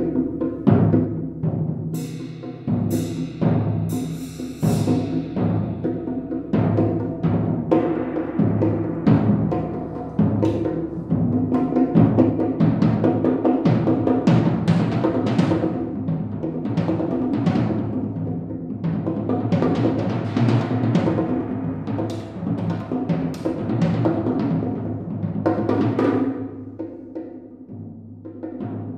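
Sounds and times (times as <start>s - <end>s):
tom-toms played with sticks: 0.0s - 27.6s.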